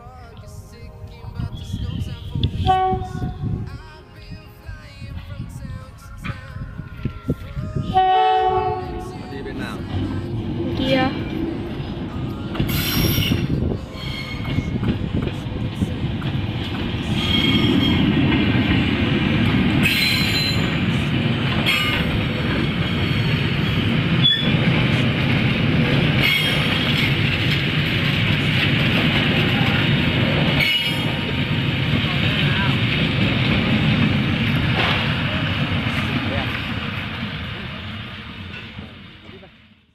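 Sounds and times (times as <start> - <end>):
train wheels rumbling on rails: 7.6 - 39.9
wheels clattering over rail joints: 9.9 - 39.4
high wheel squeals: 12.7 - 14.8, 17.1 - 18.2, 19.8 - 20.8, 21.7 - 24.6, 26.2 - 27.2.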